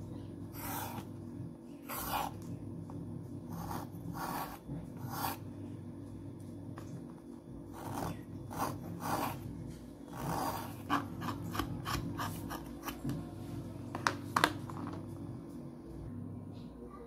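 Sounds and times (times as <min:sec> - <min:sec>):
knife scraping pencil: 0:00.5 - 0:01.2, 0:01.8 - 0:02.4, 0:03.5 - 0:05.4, 0:07.7 - 0:09.5, 0:10.1 - 0:13.0.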